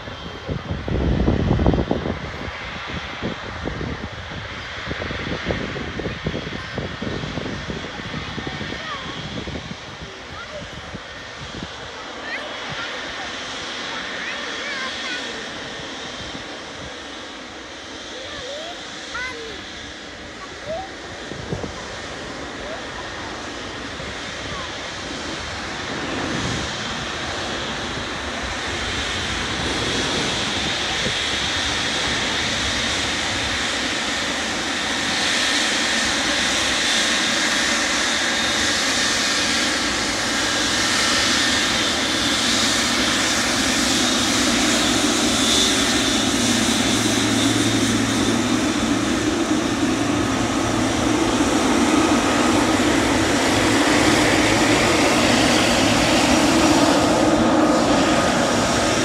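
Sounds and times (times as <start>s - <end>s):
jet engines whining and rumbling: 0.0s - 59.0s.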